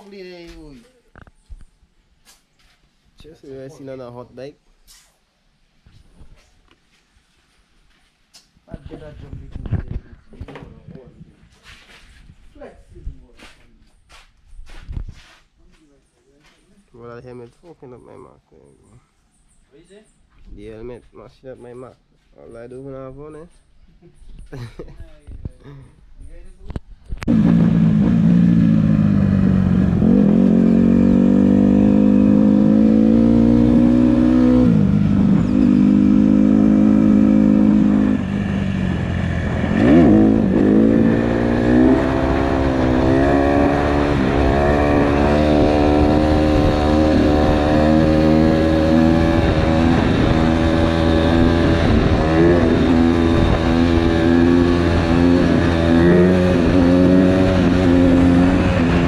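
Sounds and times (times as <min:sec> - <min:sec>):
dirt bike engine revving: 0:27.3 - 0:59.0.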